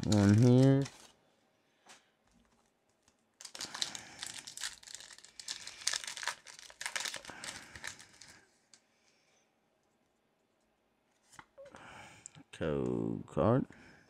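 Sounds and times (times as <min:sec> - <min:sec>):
foil wrapper crinkling: 0:00.0 - 0:01.2, 0:03.0 - 0:08.4.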